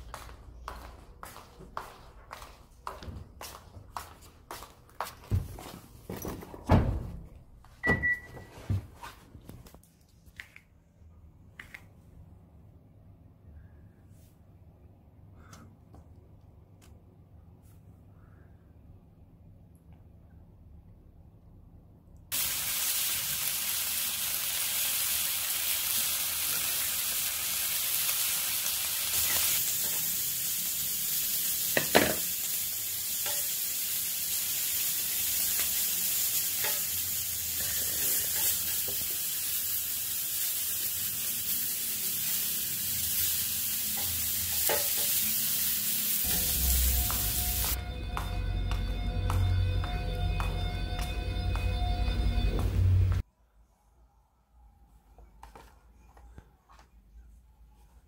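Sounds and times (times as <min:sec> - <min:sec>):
meat sizzling on a grill: 0:22.3 - 0:47.8
music: 0:46.3 - 0:53.2.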